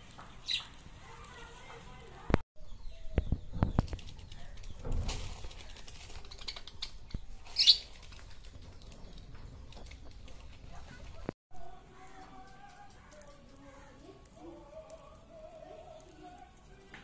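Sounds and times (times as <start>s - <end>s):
bird wings fluttering: 3.4s - 11.3s.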